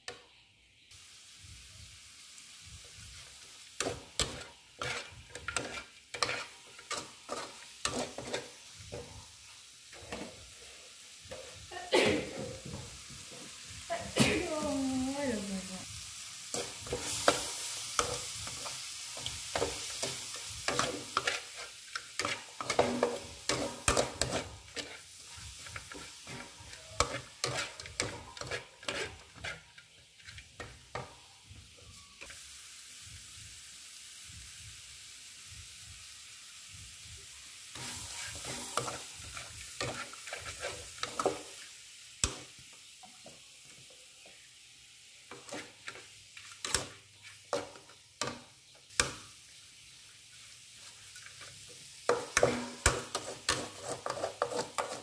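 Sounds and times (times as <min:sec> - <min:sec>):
food sizzling: 0:00.0 - 0:55.0
metal spatula scraping pan: 0:03.8 - 0:09.0, 0:16.5 - 0:31.0, 0:37.8 - 0:41.6, 0:45.3 - 0:47.7, 0:52.1 - 0:55.0.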